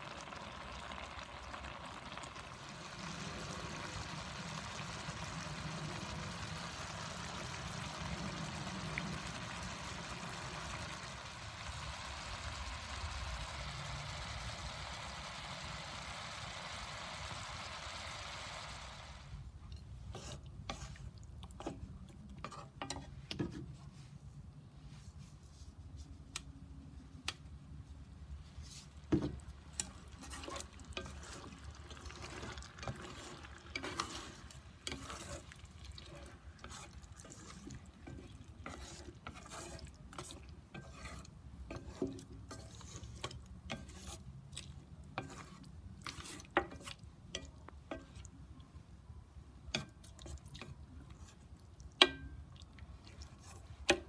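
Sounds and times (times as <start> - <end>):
sauce sizzling: 0.0 - 19.5, 28.3 - 48.8
chopsticks tapping against pan: 52.0 - 52.4.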